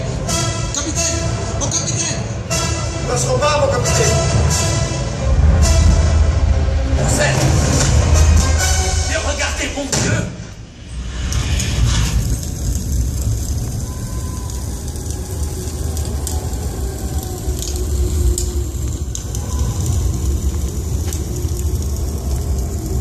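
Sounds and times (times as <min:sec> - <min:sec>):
ride car rumbling on rail: 0:11.7 - 0:23.0.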